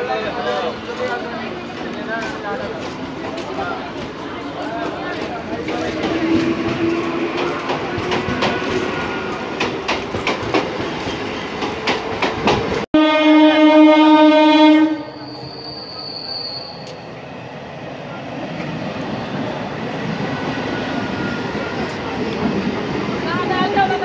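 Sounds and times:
moving train rumble: 0:00.0 - 0:24.0
train wheels clattering over rail joints: 0:05.1 - 0:12.8
train horn blast: 0:13.0 - 0:15.3.

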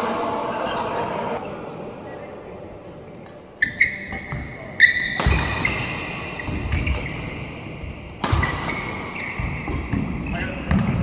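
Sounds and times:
shoes squeaking on court floor: 0:03.3 - 0:11.0
rackets striking shuttlecock: 0:04.1 - 0:07.2, 0:08.1 - 0:10.1.

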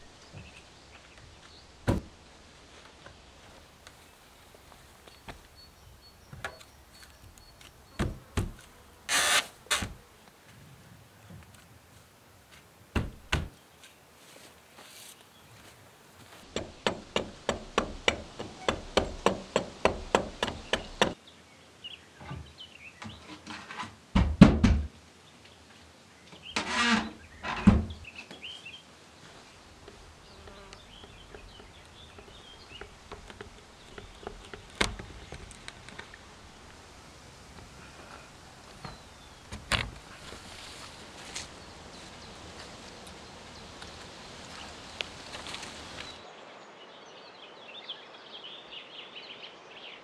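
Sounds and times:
wooden knocks and thumps of logs: 0:01.8 - 0:02.2, 0:08.0 - 0:08.7, 0:12.9 - 0:13.6, 0:16.5 - 0:21.2, 0:22.2 - 0:24.9, 0:31.0 - 0:36.2
birds chirping: 0:03.0 - 0:10.6, 0:25.2 - 0:36.8, 0:37.6 - 0:50.0.

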